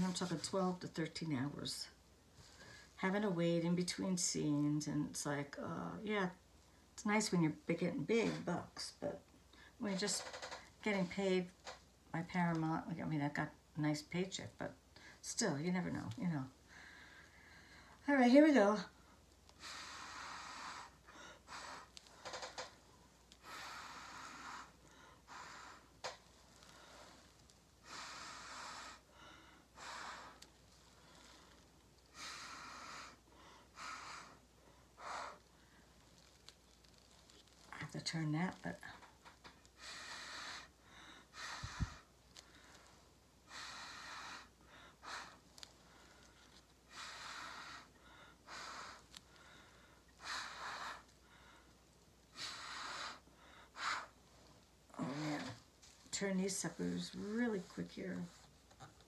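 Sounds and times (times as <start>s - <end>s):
breath puffs through a straw: 39.8s - 42.8s.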